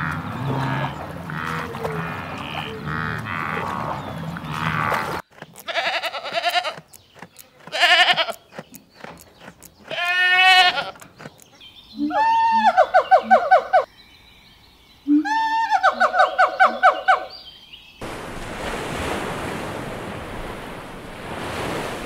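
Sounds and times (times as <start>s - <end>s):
low animal sounds: 0.0s - 6.8s
goat bleating: 5.6s - 8.5s, 9.9s - 11.0s.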